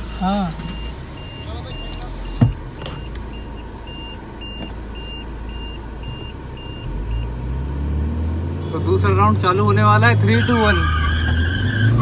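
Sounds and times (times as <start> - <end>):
dashboard warning beeps: 0.0 - 7.4
diesel engine idling: 0.0 - 7.5
engine revving: 6.7 - 12.0.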